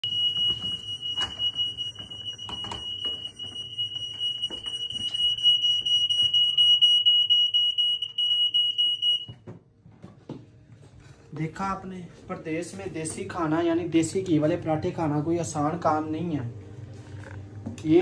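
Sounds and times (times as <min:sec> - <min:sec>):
smoke alarm shrill tone: 0:00.0 - 0:09.3.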